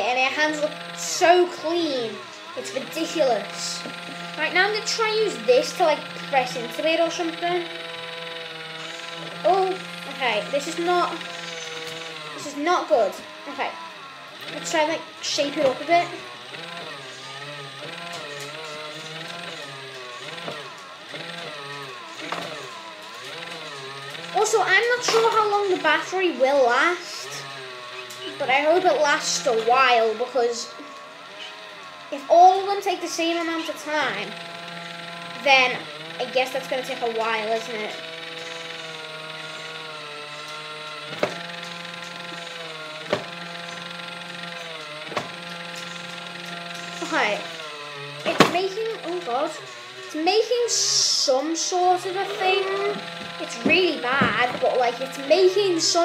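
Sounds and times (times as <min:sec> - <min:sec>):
toy pottery wheel motor whirring: 0:00.0 - 0:56.0.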